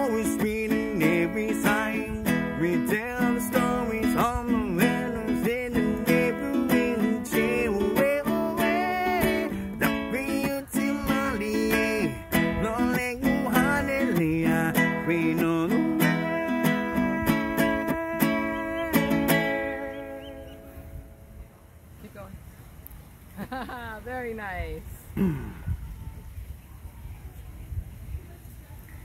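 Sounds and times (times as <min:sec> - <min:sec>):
wordless vocal melody: 0:00.0 - 0:20.9
ukulele strumming: 0:00.0 - 0:21.1.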